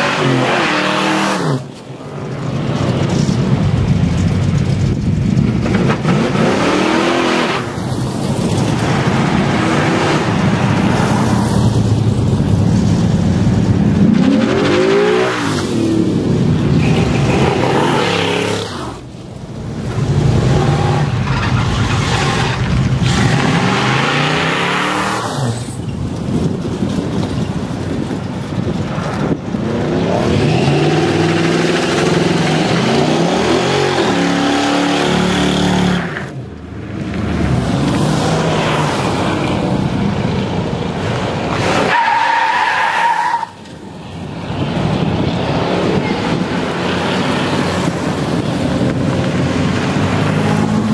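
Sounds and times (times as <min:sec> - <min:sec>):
car engines revving: 0:00.0 - 0:50.9
tyres squealing and skidding: 0:16.6 - 0:19.1, 0:20.4 - 0:26.0, 0:41.5 - 0:43.9.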